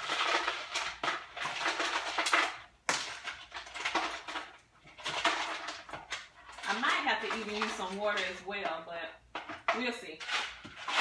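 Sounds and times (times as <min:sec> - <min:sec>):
ice cubes pouring into blender jar: 0:00.0 - 0:08.3.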